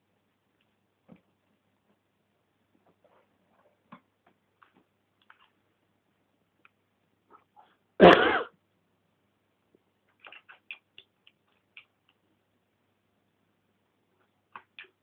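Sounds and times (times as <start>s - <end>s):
harsh cough-like burst: 8.0s - 8.6s.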